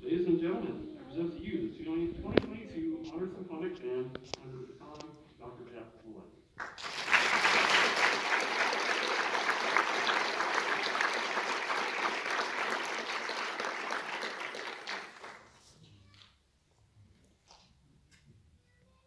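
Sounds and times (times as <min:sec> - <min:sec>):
audience applause: 0:06.6 - 0:15.6.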